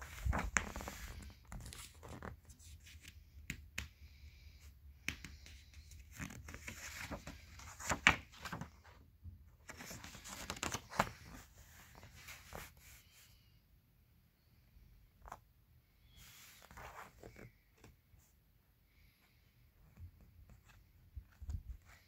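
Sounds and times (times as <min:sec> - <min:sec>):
paper pages rustling and crinkling: 0:00.0 - 0:03.2, 0:05.1 - 0:09.0, 0:09.6 - 0:13.2.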